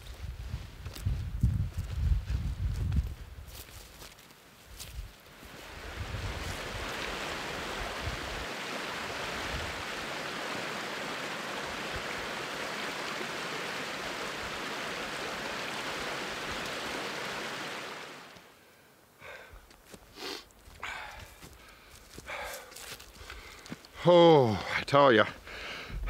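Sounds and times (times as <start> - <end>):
creek rushing over stones: 5.2 - 18.6.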